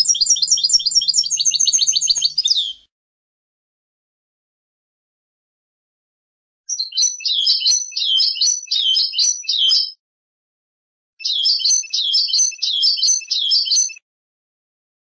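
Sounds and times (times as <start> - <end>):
bird twittering song: 0.0 - 2.9, 6.7 - 10.0, 11.2 - 14.0.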